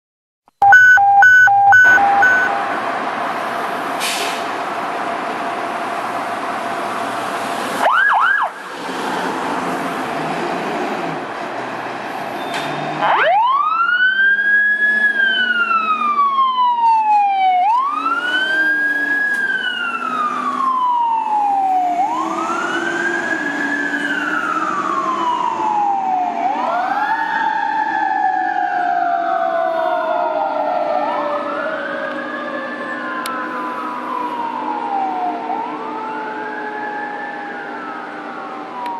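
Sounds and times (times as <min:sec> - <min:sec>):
electronic siren wailing: 0:00.6 - 0:02.9, 0:13.0 - 0:38.9
siren chirp: 0:00.6 - 0:02.9.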